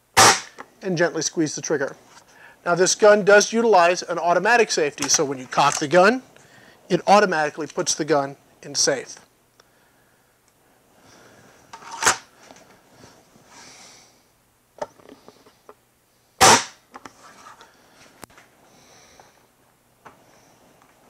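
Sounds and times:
air rifle shot crack: 0:00.2 - 0:00.6, 0:16.4 - 0:16.8.

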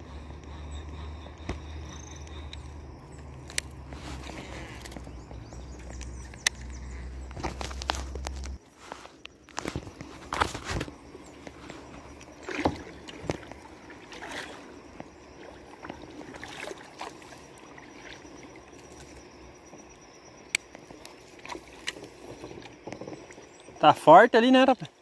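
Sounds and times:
paddle splashes: 0:07.4 - 0:19.3, 0:20.8 - 0:25.0
faint wash of water: 0:11.4 - 0:19.4.

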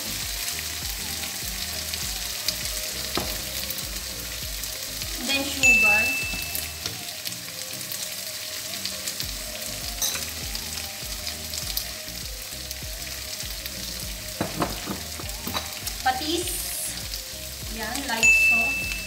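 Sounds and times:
food sizzling in a pan: 0:00.0 - 0:19.0
knocks: 0:14.4 - 0:15.1.

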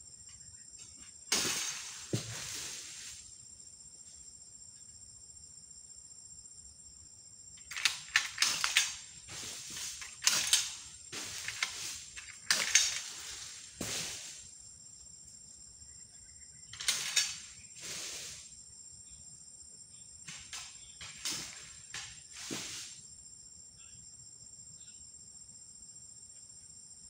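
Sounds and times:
insect drone: 0:00.0 - 0:27.0
palm fronds crashing down: 0:01.3 - 0:03.3, 0:07.7 - 0:14.5, 0:20.3 - 0:23.0.

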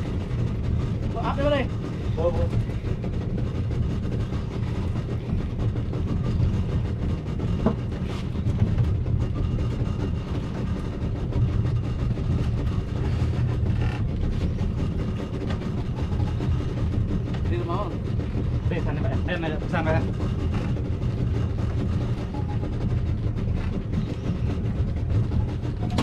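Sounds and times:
boat engine rumbling: 0:00.0 - 0:26.0.

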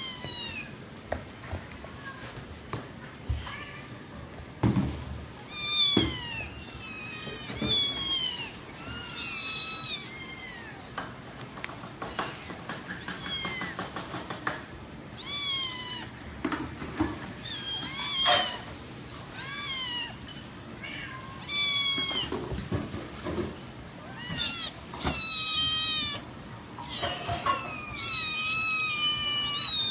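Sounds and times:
kittens meowing: 0:00.0 - 0:00.8, 0:05.4 - 0:11.0, 0:12.1 - 0:13.9, 0:15.1 - 0:16.2, 0:17.3 - 0:22.5, 0:24.0 - 0:29.9.

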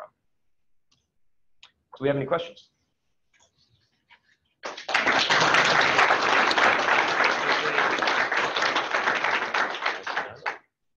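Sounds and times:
audience applauding: 0:04.6 - 0:10.7.

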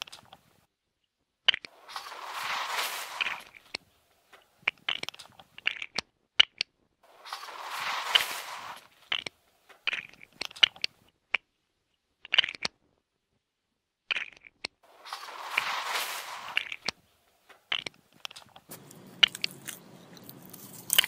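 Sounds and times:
loose bricks rustling: 0:01.6 - 0:06.0, 0:07.1 - 0:10.9, 0:14.8 - 0:21.0
plastic bricks clicking and clattering: 0:04.4 - 0:10.9, 0:12.2 - 0:12.8, 0:14.1 - 0:17.0, 0:17.6 - 0:21.0.

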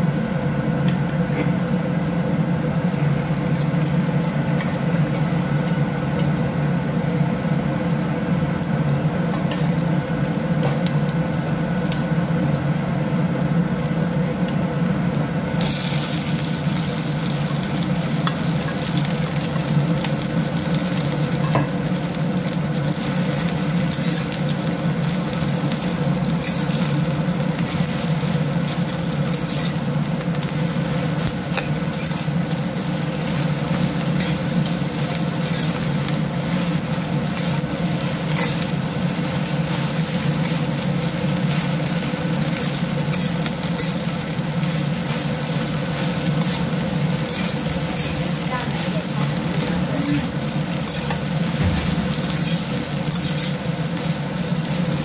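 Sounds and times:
rice sizzling in a wok: 0:00.0 - 0:55.0
spatula scraping a wok: 0:04.9 - 0:06.4, 0:23.0 - 0:32.6, 0:33.3 - 0:55.0.

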